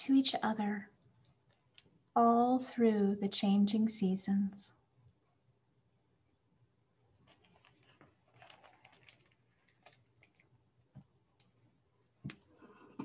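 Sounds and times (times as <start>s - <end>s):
book rustling: 7.2s - 10.6s.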